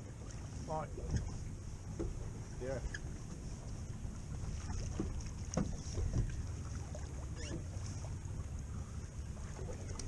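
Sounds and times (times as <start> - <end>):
boat engine rumble: 0.0 - 10.0
light knocks: 1.9 - 2.2.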